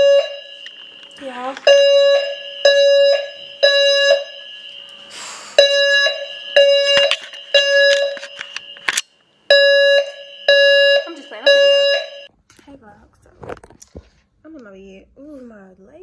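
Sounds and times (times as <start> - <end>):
fire alarm beeping: 0.0 - 12.3.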